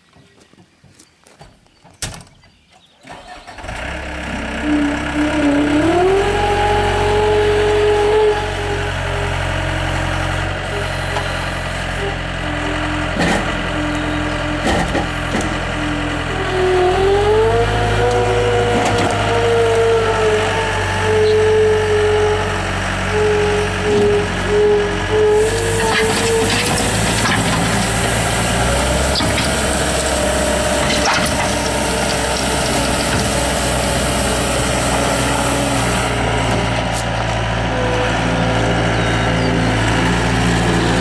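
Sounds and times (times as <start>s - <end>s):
diesel engine cranking and starting: 3.0s - 41.0s
diesel engine revving: 3.0s - 41.0s
hydraulics working: 3.0s - 41.0s.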